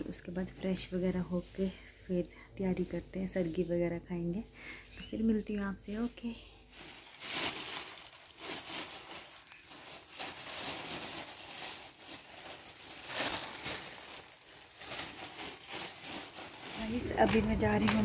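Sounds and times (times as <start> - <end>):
plastic bag crinkling: 6.4 - 18.0.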